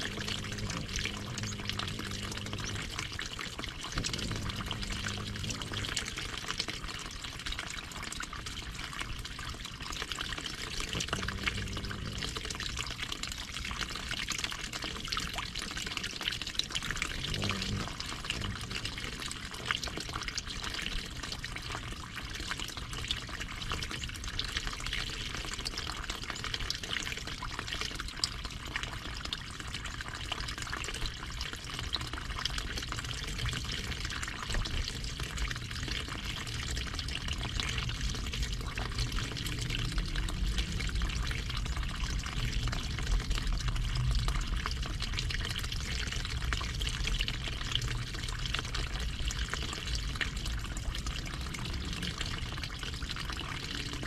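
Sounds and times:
low steady hum: 0.0s - 13.8s, 16.7s - 21.6s, 31.3s - 54.0s
stream water trickling: 0.0s - 54.0s.

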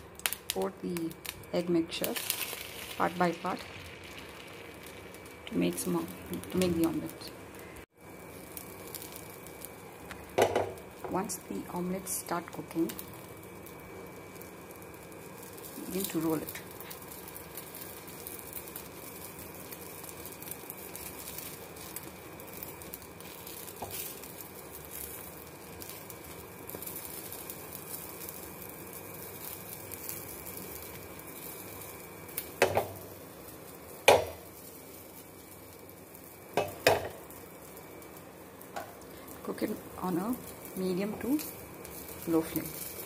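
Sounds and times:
omelette sizzling in oil: 0.0s - 43.0s
cookware knocks: 10.4s - 10.8s.

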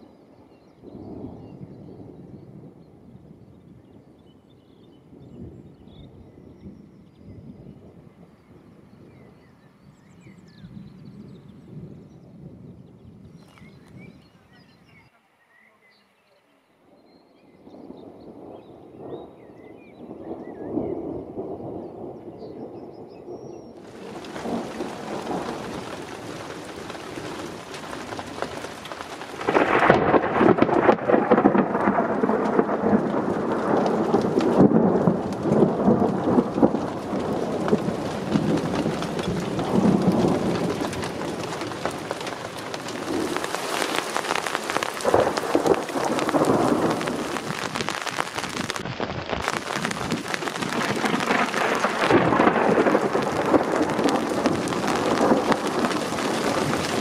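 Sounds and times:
thunder rumbling: 17.5s - 57.0s
rain falling: 23.6s - 57.0s.

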